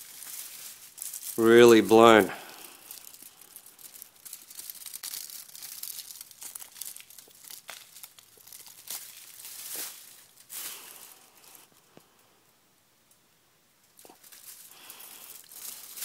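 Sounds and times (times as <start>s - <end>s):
foil and film crinkling: 0.0s - 11.9s, 14.0s - 16.0s.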